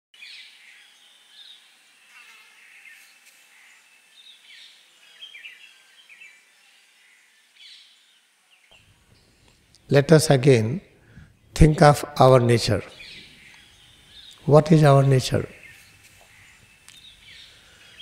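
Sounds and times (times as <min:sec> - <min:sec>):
light hiss: 0:00.2 - 0:09.9, 0:15.2 - 0:18.0
birds chirping: 0:00.2 - 0:18.0.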